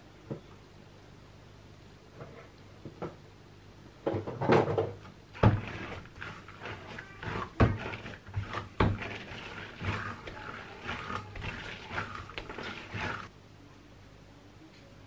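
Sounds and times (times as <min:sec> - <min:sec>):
sticky squishing of dough: 0:05.3 - 0:13.3.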